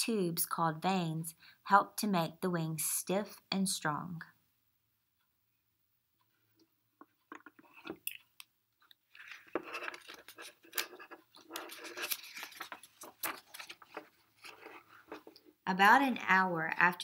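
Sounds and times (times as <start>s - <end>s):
book pages rustling: 8.9s - 15.6s.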